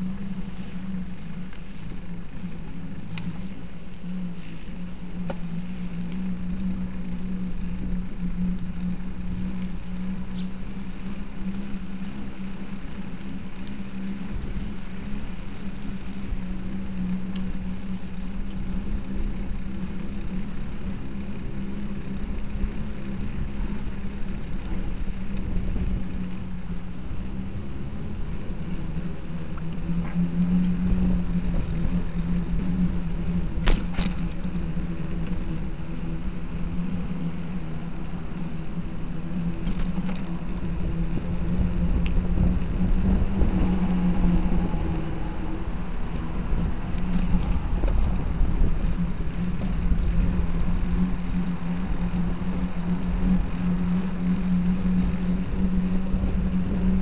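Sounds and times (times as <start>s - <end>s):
small motor humming: 0.0s - 57.0s
wheels rolling on pavement: 0.0s - 57.0s.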